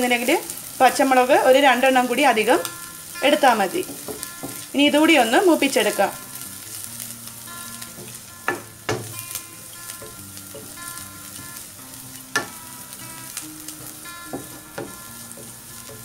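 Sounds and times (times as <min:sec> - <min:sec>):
chillies sizzling in oil: 0:00.0 - 0:16.0
spatula knocking pan: 0:03.4 - 0:04.7, 0:07.8 - 0:16.0.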